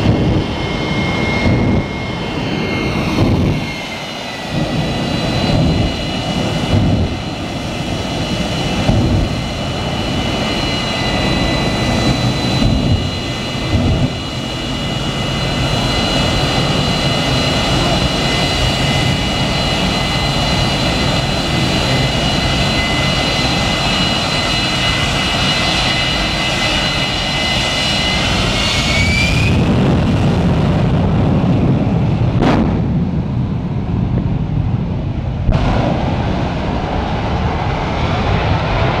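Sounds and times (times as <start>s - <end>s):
deep jet rumble: 0.0s - 39.0s
jet engine whine: 0.0s - 39.0s
sharp bang: 3.1s - 3.8s, 8.7s - 9.8s.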